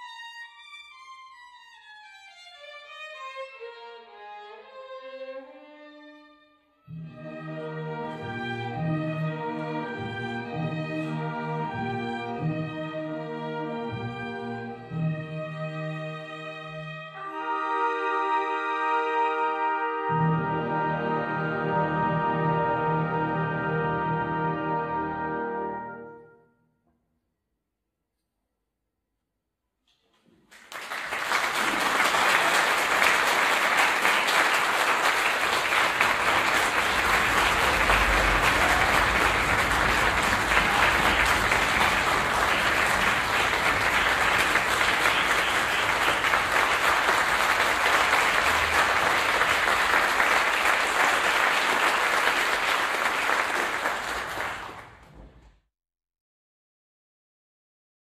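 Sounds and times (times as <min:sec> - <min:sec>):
audience applauding: 0:30.4 - 0:55.3.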